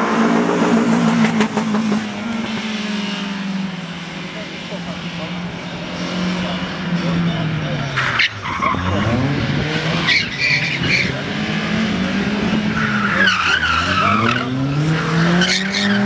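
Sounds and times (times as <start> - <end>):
car engine revving: 0.0 - 16.0
tyres squealing: 12.5 - 16.0.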